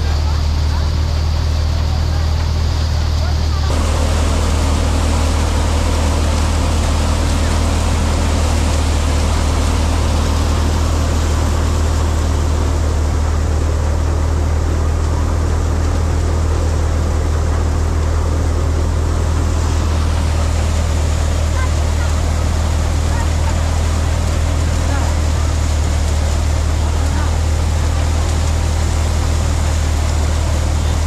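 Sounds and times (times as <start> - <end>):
thresher machine humming: 3.5 - 31.0
rushing noise: 3.7 - 15.1, 19.0 - 26.5.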